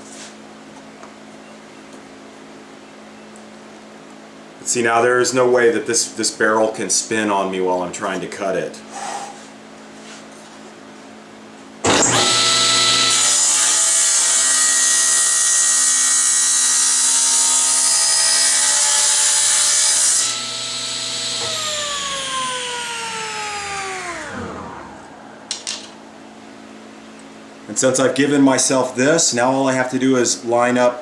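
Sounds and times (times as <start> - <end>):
saw blade coasting down: 11.8 - 26.3
table saw motor running: 11.8 - 26.8
saw blade whine cutting wood: 11.8 - 26.9.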